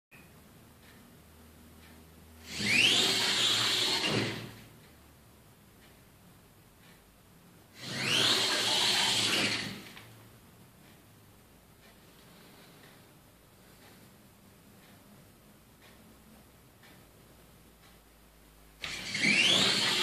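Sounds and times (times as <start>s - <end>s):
robot electric motors whining: 2.5s - 4.6s, 7.8s - 9.9s, 18.8s - 20.0s.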